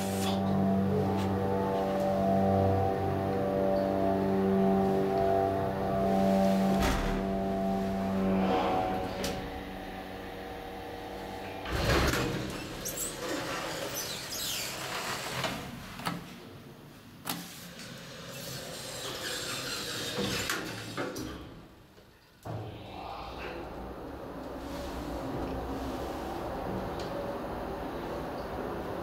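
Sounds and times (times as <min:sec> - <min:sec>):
elevator drive humming: 0:00.0 - 0:14.6, 0:22.5 - 0:29.0
elevator doors sliding: 0:00.0 - 0:16.6, 0:17.2 - 0:21.8, 0:22.5 - 0:29.0.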